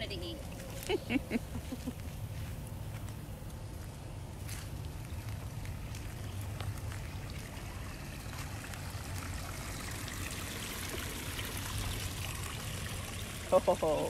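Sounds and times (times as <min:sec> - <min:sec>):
water trickling: 0:00.0 - 0:01.7, 0:04.8 - 0:14.0.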